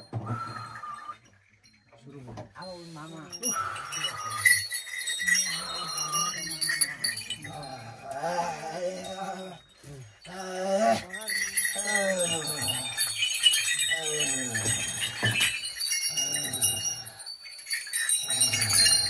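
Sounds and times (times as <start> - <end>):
small bells jingling: 0.0 - 19.0
man chanting: 5.2 - 13.0.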